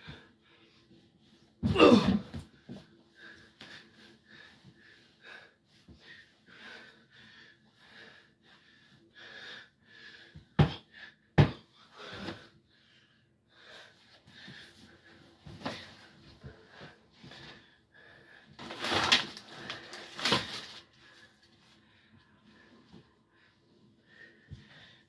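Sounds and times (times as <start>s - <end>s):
man panting: 1.7s - 18.6s.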